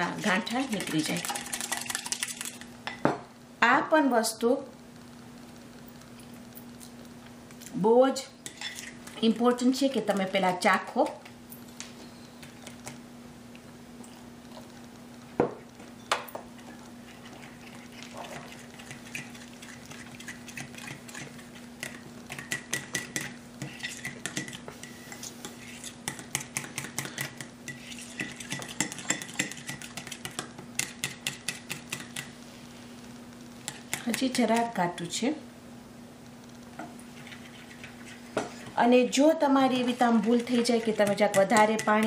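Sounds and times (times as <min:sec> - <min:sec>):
whisk clinking against glass bowl: 0:26.1 - 0:32.3, 0:40.2 - 0:42.0.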